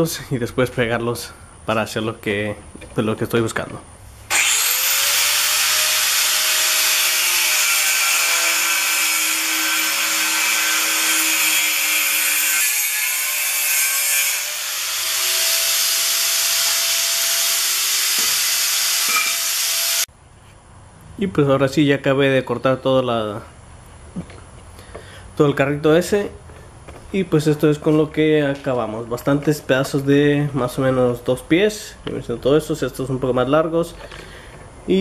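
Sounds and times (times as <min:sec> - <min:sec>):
power tool cutting steel tubing: 0:04.3 - 0:20.1.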